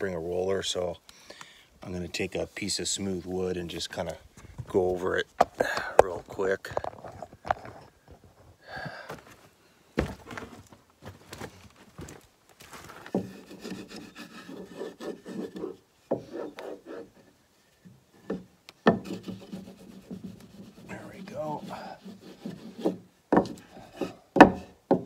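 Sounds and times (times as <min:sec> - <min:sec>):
wood knocking on wood: 0:13.1 - 0:13.8, 0:18.2 - 0:20.8, 0:22.5 - 0:25.0
wood block rubbing on flashing: 0:18.8 - 0:24.1.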